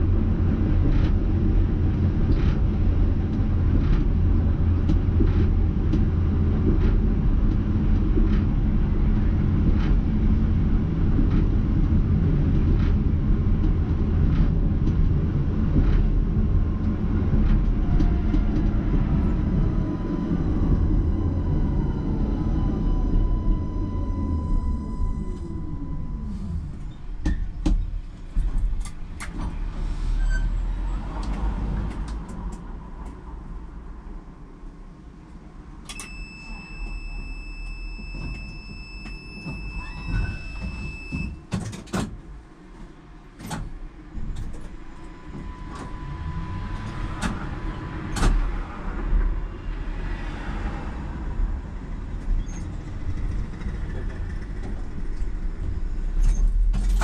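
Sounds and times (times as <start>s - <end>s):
tram rumbling: 0.0s - 57.0s
steady high tone: 18.9s - 26.8s, 45.0s - 48.1s
sharp clicks and knocks: 27.2s - 29.6s, 40.5s - 46.0s.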